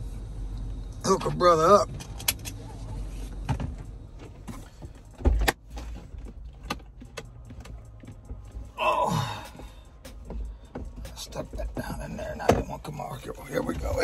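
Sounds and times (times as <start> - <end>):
car door shutting: 3.3 - 8.4
small clicks and knocks: 3.6 - 8.7.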